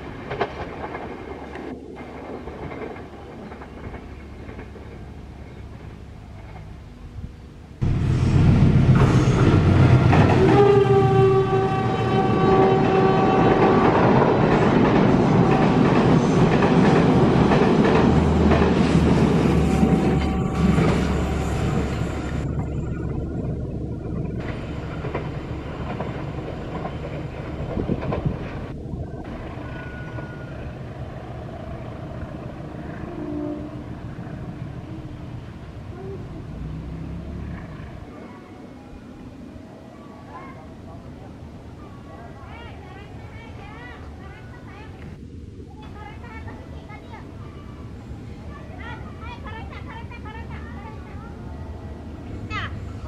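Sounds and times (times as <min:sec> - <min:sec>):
train wheels rumbling on rails: 0:00.0 - 0:38.3
locomotive horn chord: 0:10.2 - 0:13.9, 0:19.5 - 0:22.4, 0:33.0 - 0:34.1.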